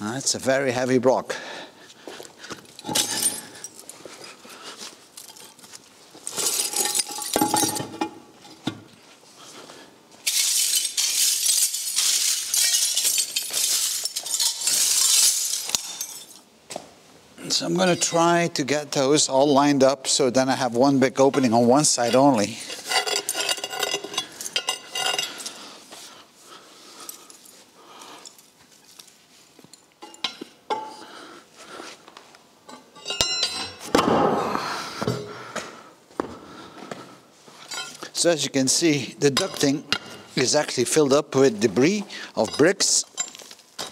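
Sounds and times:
stiff broom sweeping concrete floor: 10.2 - 16.0
ringing metallic clanks: 32.7 - 34.0.

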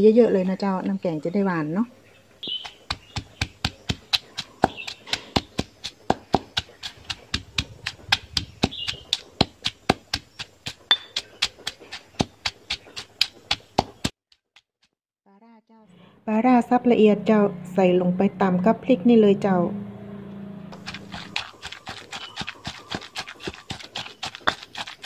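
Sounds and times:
pestle pounding in stone mortar: 2.4 - 14.7, 20.8 - 25.0.

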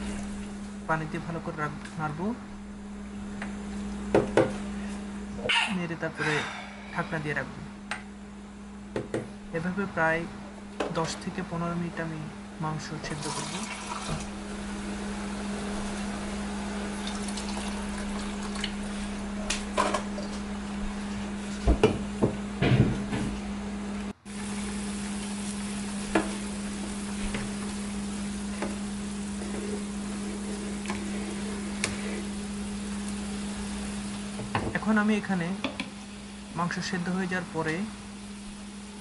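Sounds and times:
curry bubbling and hissing: 0.0 - 0.8, 13.2 - 19.5, 24.2 - 34.5.

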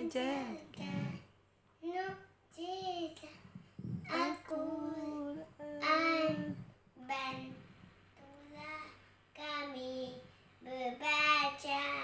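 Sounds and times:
boy chanting: 4.1 - 7.6, 9.4 - 12.0.

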